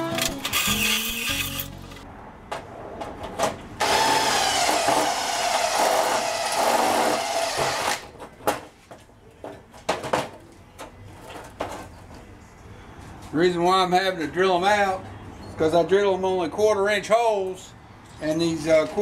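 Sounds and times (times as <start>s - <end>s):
cordless drill boring steel: 3.8s - 8.0s.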